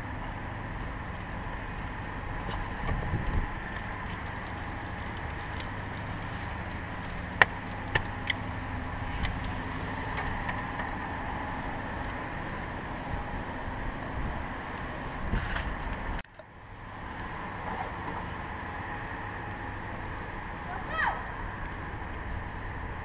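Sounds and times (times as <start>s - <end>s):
wind buffeting microphone: 0.0s - 16.2s.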